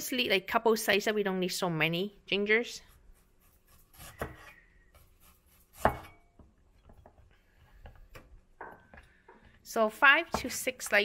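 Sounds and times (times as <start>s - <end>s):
cleaver chopping on board: 5.8s - 6.1s.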